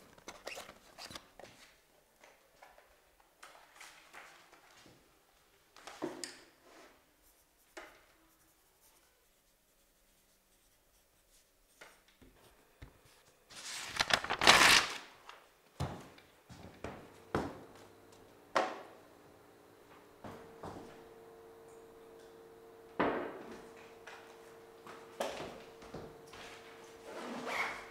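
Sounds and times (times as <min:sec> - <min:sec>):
paper ripping: 0:13.5 - 0:15.3.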